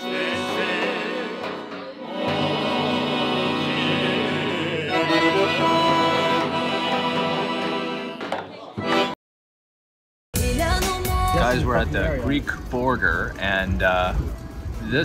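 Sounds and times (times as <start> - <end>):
men singing together: 0.0 - 8.1
accordion: 0.0 - 8.2, 8.8 - 9.2.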